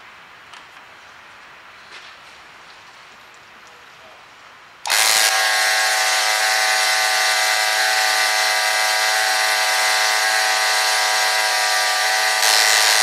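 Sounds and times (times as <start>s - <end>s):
electric pump buzzing whine: 4.8s - 13.0s.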